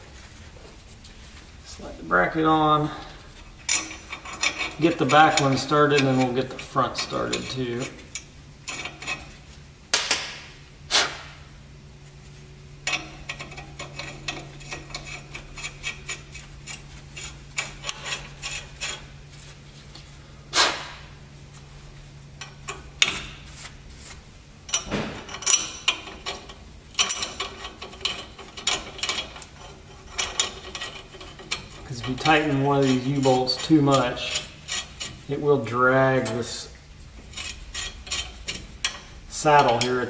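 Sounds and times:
metal nuts and washers clinking: 2.8 - 9.3, 12.8 - 19.1, 24.7 - 35.5, 37.2 - 40.0
sharp metal knocks: 24.8 - 26.1.

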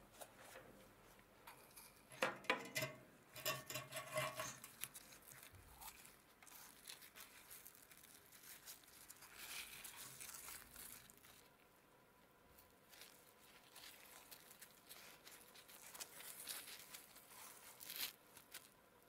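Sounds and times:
rubbing and rustling: 0.0 - 11.6, 12.5 - 18.8
rusty metal clicks and scrapes: 1.5 - 5.2.

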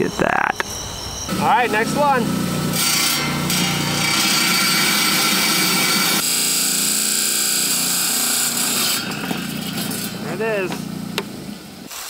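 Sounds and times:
wet saw grinding stone: 1.3 - 10.8.

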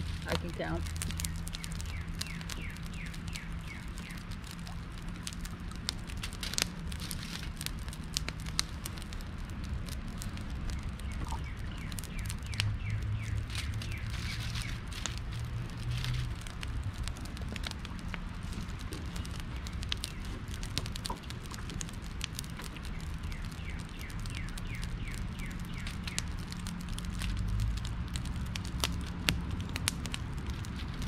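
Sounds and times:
campfire crackling and popping: 0.0 - 31.0
birds chirping: 0.2 - 4.4.

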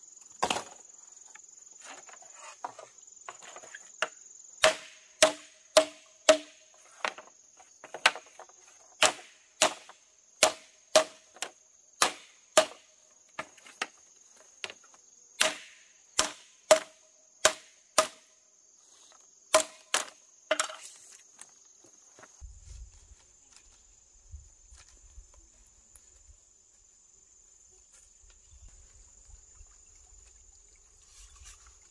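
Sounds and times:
insects chirring: 0.0 - 31.9
hand tool striking wood: 3.3 - 8.4, 9.0 - 14.0, 15.4 - 18.3, 19.5 - 20.9.

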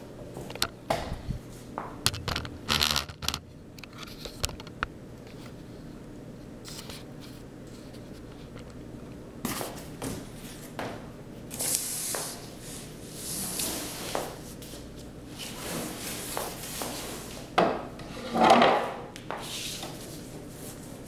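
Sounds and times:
board scraping and rustling: 15.4 - 19.0.

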